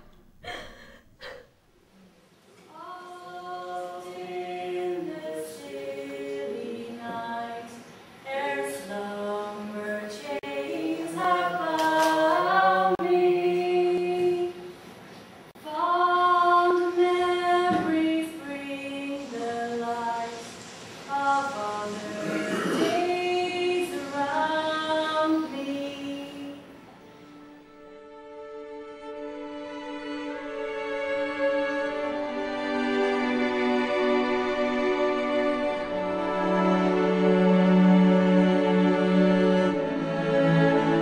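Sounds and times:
group singing in harmony: 2.7 - 14.7, 15.7 - 26.7.

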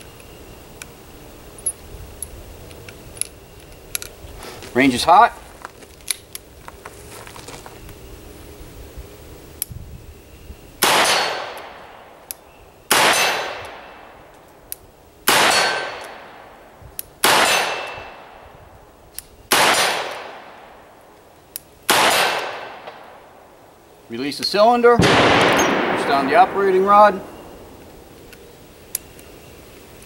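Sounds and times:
revolver gunshots: 10.8 - 12.2, 12.9 - 14.1, 15.3 - 16.6, 17.2 - 18.4, 19.5 - 20.6, 21.9 - 23.2, 25.0 - 28.2.

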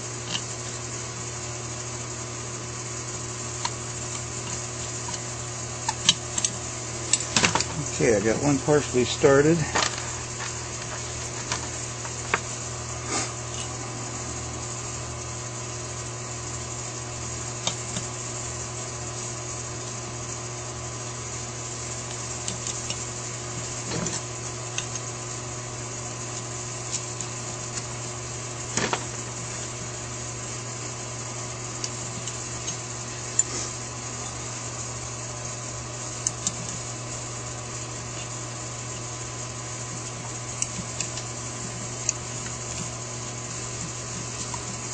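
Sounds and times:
steady electrical hum: 0.0 - 44.9
small metal clicks and scrapes: 22.1 - 23.0, 39.9 - 44.9.

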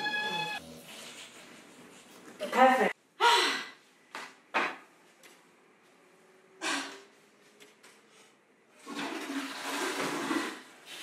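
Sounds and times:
woman gasping: 3.2 - 3.8.

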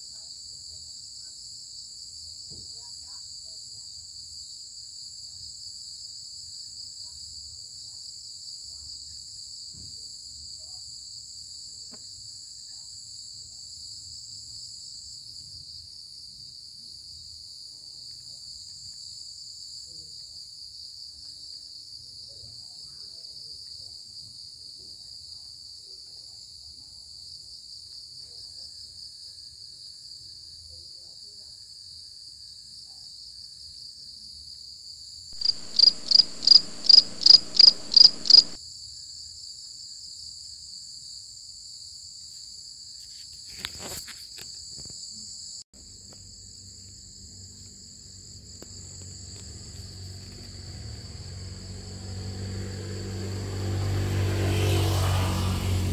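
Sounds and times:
insect chorus trilling: 35.4 - 38.6, 46.0 - 52.0
loud insect chirps: 35.4 - 38.6.

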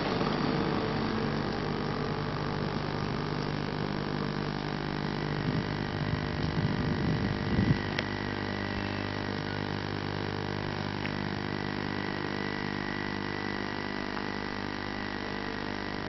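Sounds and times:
car engine and road noise: 0.0 - 8.8
low rumbling: 0.0 - 12.9.

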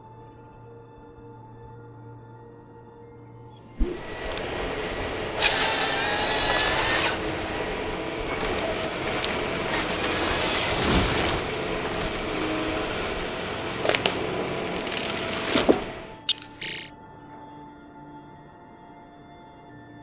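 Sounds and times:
chainsaw cutting through trunk: 3.8 - 16.2
harvester engine under load: 3.8 - 16.9.

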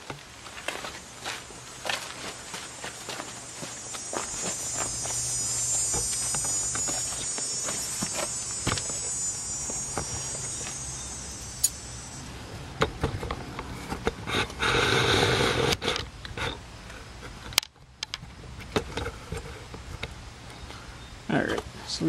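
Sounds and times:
high thin buzz: 1.0 - 12.4.

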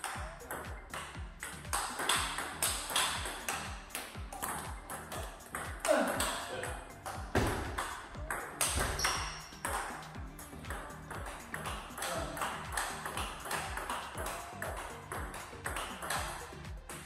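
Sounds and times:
background music with steady beat: 0.0 - 17.0
table tennis ball clicks: 10.7 - 17.0.

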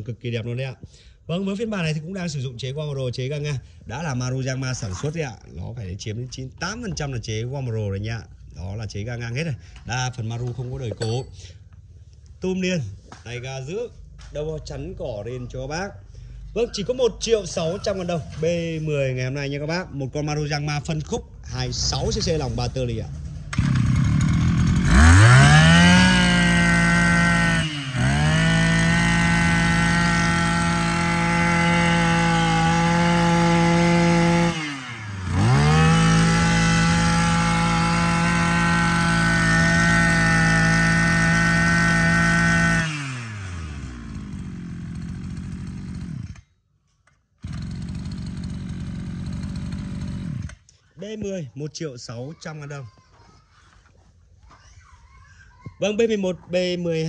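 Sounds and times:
brush cutter engine revving: 21.7 - 46.5, 47.4 - 50.7.

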